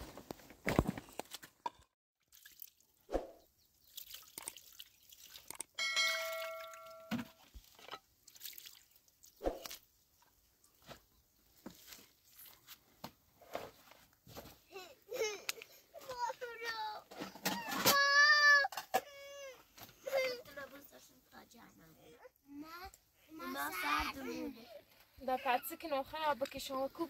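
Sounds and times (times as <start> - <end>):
water dripping into plastic jug: 3.8 - 7.3.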